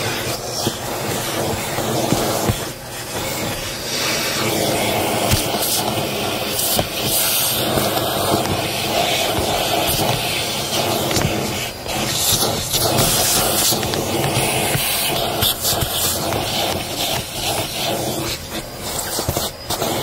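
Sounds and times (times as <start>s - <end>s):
debris clicking up vacuum hose: 0.0s - 20.0s
vacuum cleaner suction hiss: 0.0s - 20.0s.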